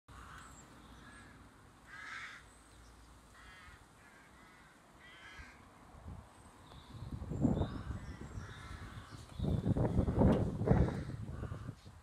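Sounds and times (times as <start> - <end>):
birds calling: 0.1 - 11.8.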